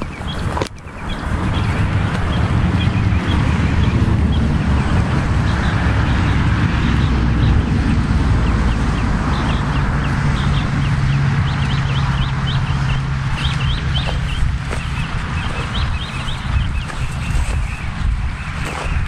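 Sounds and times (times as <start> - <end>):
road traffic rumble: 0.0 - 19.0.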